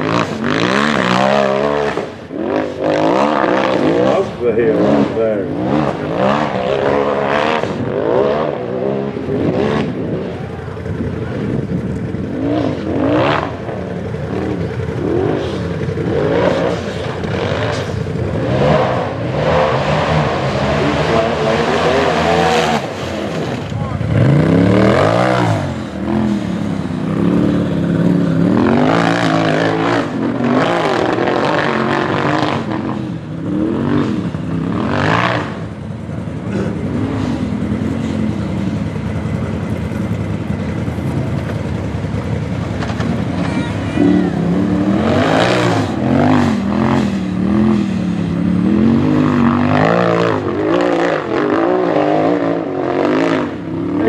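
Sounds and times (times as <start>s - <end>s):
buggy engine revving hard: 0.0s - 54.0s.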